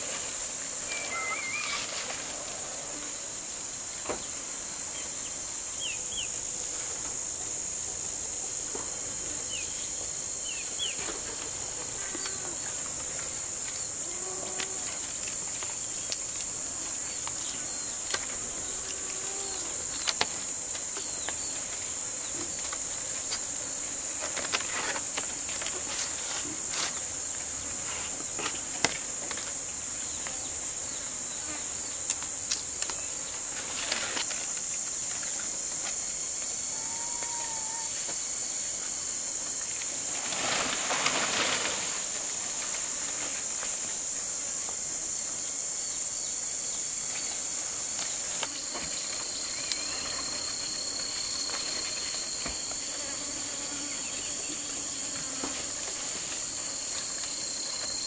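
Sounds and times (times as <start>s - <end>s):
insects shrilling: 0.0s - 6.7s, 9.4s - 58.0s
clicks and rustles of handled leaves: 11.0s - 30.3s, 32.0s - 36.5s, 39.7s - 44.1s.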